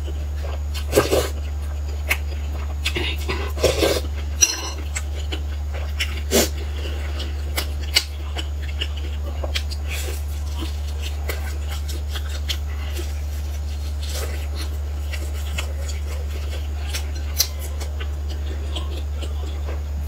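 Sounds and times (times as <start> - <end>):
steady low hum: 0.0 - 20.0
spoon clinking on glass bowl: 4.4 - 4.8
biting into flatbread: 4.8 - 20.0.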